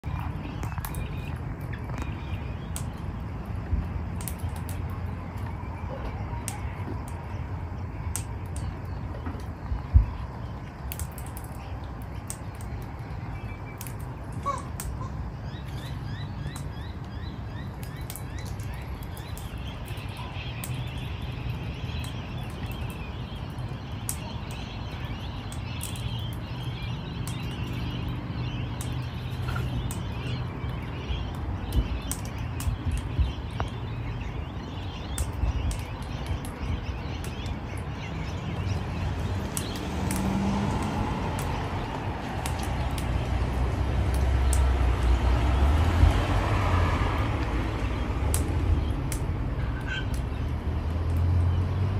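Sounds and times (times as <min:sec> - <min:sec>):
steady low rumble: 0:00.0 - 0:51.6
faint bird chirping: 0:04.2 - 0:39.9.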